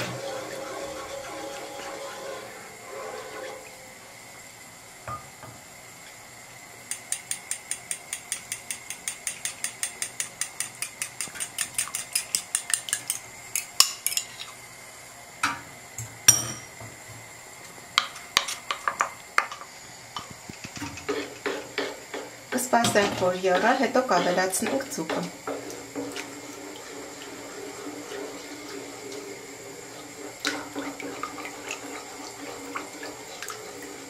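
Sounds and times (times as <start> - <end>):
cutlery clinking in bowl: 6.9 - 14.5
wooden spoon scraping bowl: 23.0 - 28.9.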